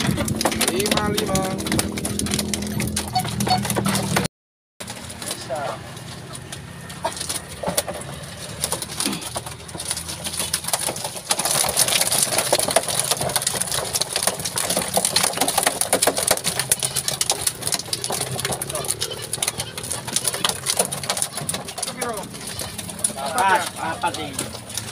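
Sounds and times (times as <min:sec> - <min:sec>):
fish splashing in water: 0:08.1 - 0:24.9.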